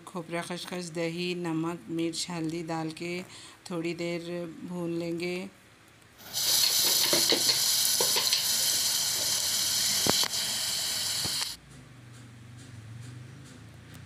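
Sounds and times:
hot oil sizzling: 0:06.2 - 0:11.6.

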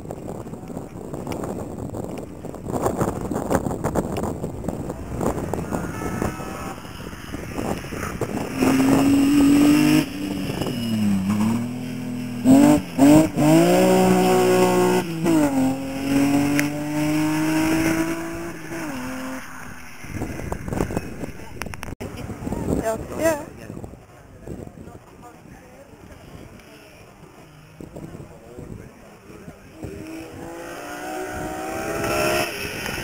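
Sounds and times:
rally car engine revving: 0:04.8 - 0:21.6, 0:29.7 - 0:33.0.

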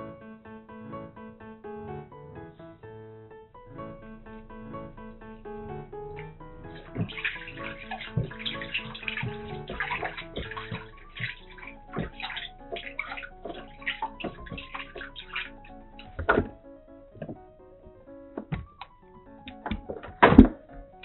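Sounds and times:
light background music: 0:03.5 - 0:21.0
water splashing in a basin: 0:04.2 - 0:16.6.

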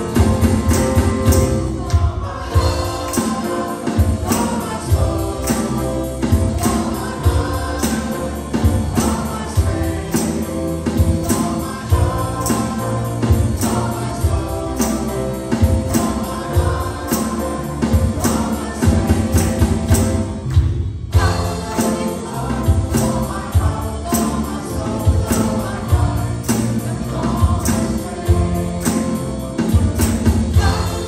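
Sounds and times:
group of singers: 0:00.0 - 0:31.0
worship band playing: 0:00.0 - 0:31.0.

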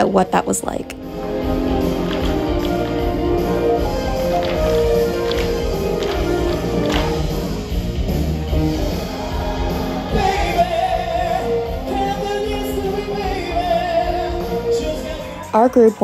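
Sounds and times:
live band music: 0:00.0 - 0:16.0
person singing: 0:10.1 - 0:15.6.

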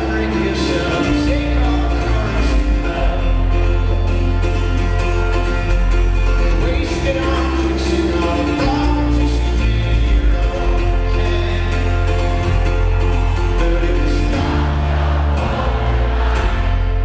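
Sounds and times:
person singing: 0:00.0 - 0:04.8, 0:06.4 - 0:17.0
live folk-rock band: 0:00.0 - 0:17.0.

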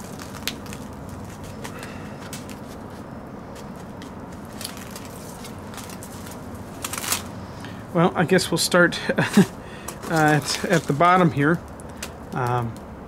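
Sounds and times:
low background hum: 0:00.0 - 0:13.0
granules ticking and crackling: 0:09.9 - 0:12.9.

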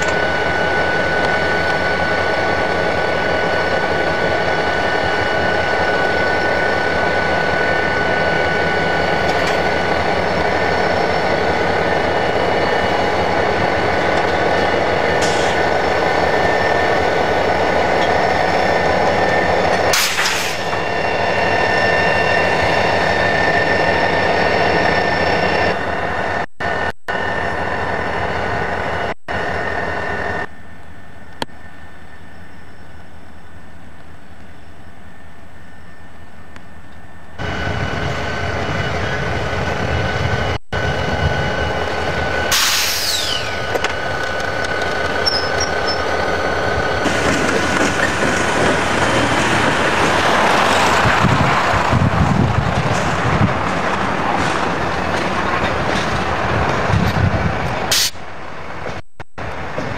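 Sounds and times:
diesel locomotive engines idling: 0:00.0 - 0:59.9
short sharp hisses: 0:19.9 - 0:20.7, 0:42.5 - 0:43.6, 0:57.9 - 0:58.2.

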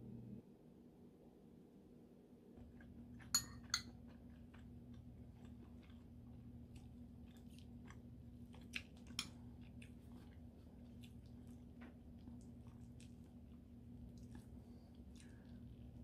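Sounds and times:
faint steady hum: 0:00.0 - 0:16.0
faint eating noises: 0:02.6 - 0:16.0
metal spoon clicking on ceramic bowl: 0:03.4 - 0:03.9.

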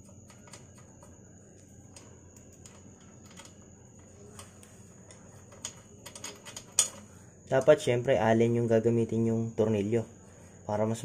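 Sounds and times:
faint high whine: 0:00.0 - 0:11.0
metal bolts clicking: 0:04.4 - 0:07.7.

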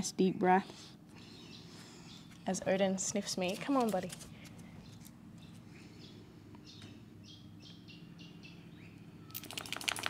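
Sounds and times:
rapid clicking or rattling: 0:09.3 - 0:10.0.

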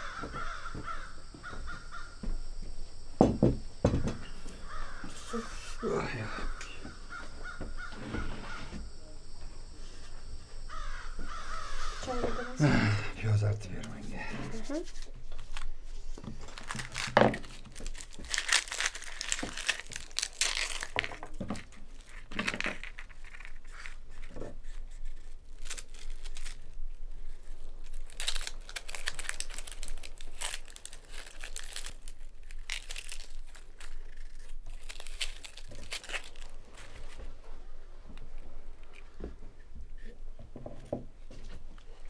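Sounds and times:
rustling and crinkling: 0:00.0 - 0:12.5, 0:13.3 - 0:42.0.

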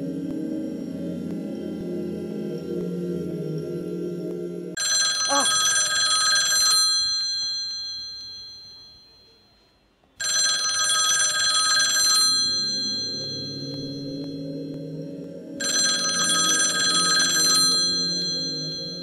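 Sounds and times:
bell-like phone ringtone: 0:04.8 - 0:09.4, 0:10.2 - 0:14.4, 0:15.6 - 0:19.0.

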